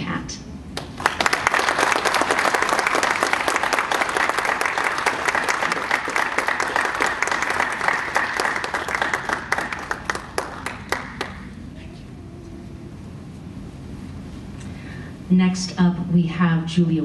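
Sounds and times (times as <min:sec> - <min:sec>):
audience applauding: 0:00.8 - 0:11.7.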